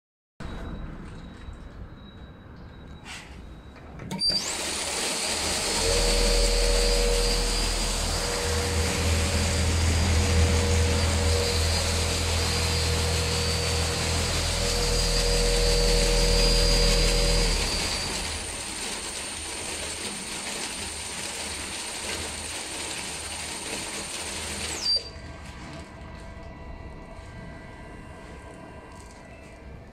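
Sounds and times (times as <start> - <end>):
auger motor whining: 4.1 - 19.4
machine stopping thump: 4.4 - 18.9.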